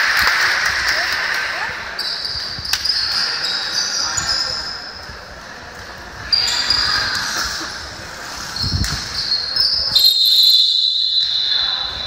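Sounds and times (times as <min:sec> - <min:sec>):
sneakers squeaking on floor: 0:02.0 - 0:05.0, 0:06.2 - 0:12.0.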